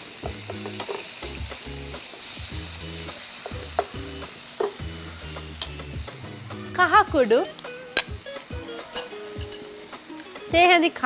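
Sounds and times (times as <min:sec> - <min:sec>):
vegetables sizzling in hot oil: 0:00.0 - 0:11.0
spoon knocking against pan: 0:03.4 - 0:04.0.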